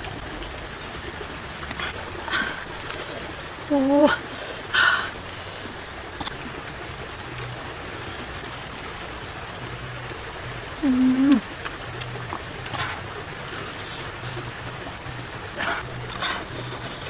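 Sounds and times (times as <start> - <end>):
woman humming: 3.7 - 4.2, 10.8 - 11.5
woman chewing food: 15.6 - 17.0.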